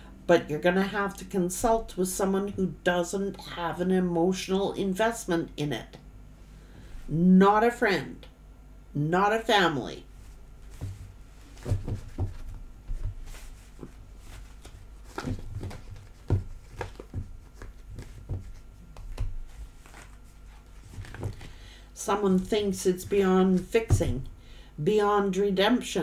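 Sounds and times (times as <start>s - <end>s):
cards being shuffled: 10.2s - 21.6s.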